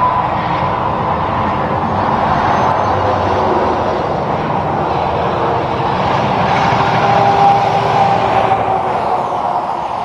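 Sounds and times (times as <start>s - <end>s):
traffic: 0.0s - 10.0s
truck driving past: 0.0s - 10.0s.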